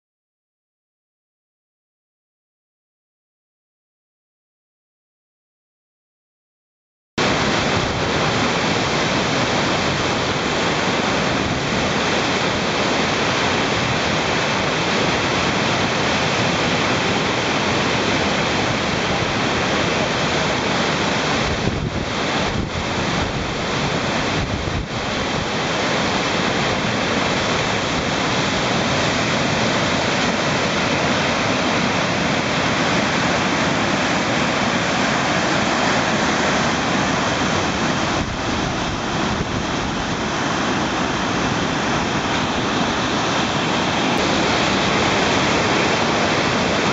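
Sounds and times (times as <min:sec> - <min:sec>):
rapids rushing water: 0:07.2 - 0:46.9.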